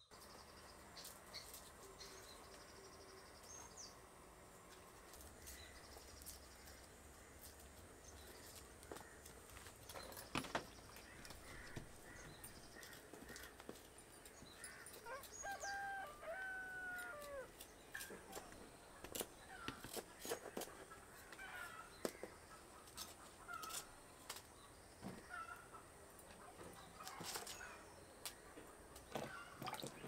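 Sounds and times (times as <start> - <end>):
rooster crowing: 15.1 - 17.5.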